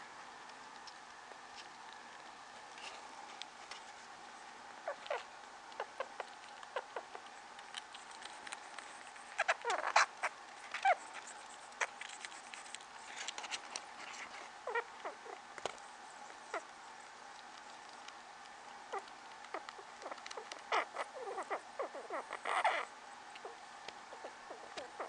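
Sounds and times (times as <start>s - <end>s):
rats squeaking and chirping: 4.8s - 18.1s, 18.9s - 25.0s.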